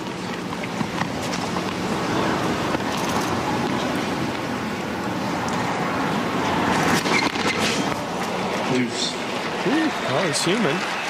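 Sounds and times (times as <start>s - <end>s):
stadium crowd murmur: 0.0s - 11.0s.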